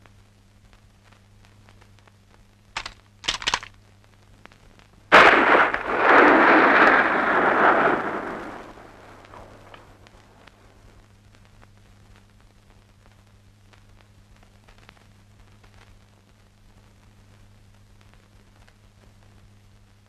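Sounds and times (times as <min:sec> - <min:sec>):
low steady hum: 0:00.0 - 0:20.0
gunshots: 0:05.1 - 0:09.9
loud rumbling explosion: 0:05.1 - 0:09.9.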